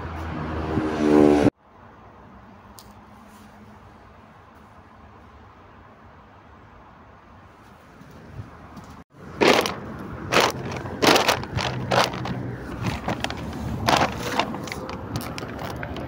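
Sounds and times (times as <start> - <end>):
footsteps crunching on gravel: 8.8 - 16.0.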